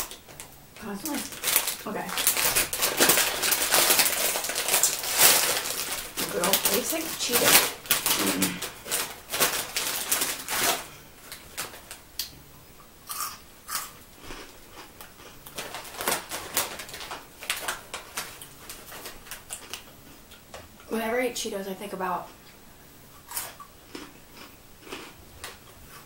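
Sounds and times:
crunching of chips: 0:00.0 - 0:12.3, 0:13.1 - 0:20.4, 0:23.1 - 0:26.0
foil chip bag crackling: 0:00.0 - 0:12.3, 0:14.3 - 0:19.9.

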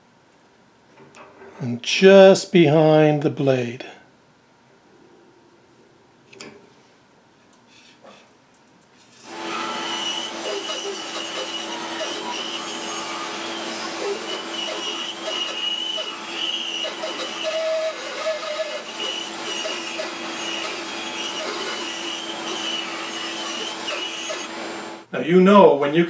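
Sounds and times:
bandsaw running with whine: 0:09.2 - 0:25.1.

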